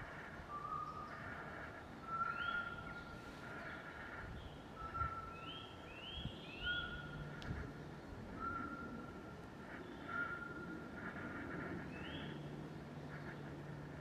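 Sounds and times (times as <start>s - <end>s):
birds whistling: 4.8s - 7.2s, 8.4s - 9.1s.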